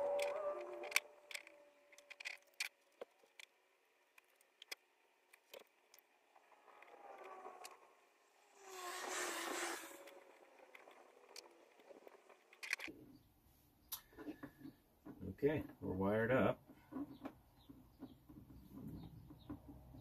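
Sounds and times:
wires and connectors clicking: 0.0s - 7.8s, 9.8s - 12.9s
electrical tape ripping off roll: 6.4s - 12.9s.

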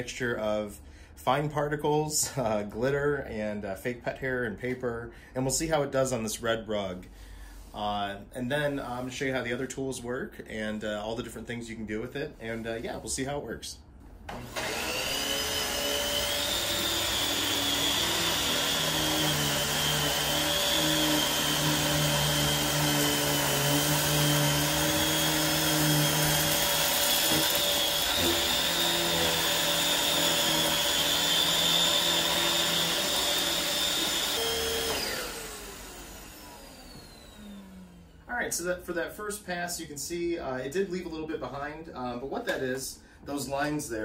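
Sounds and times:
vacuum cleaner whining: 14.3s - 38.2s
vacuum motor winding down: 14.3s - 38.3s.

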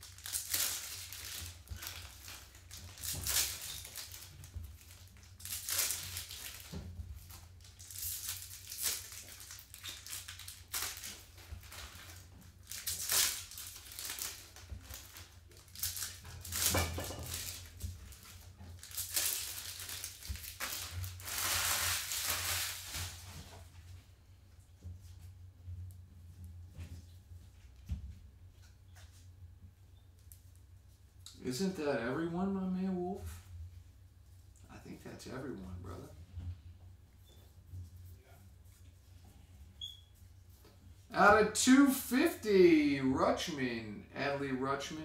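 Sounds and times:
card pack wrappers tearing and crinkling: 0.0s - 23.3s
low steady hum: 0.0s - 45.0s.

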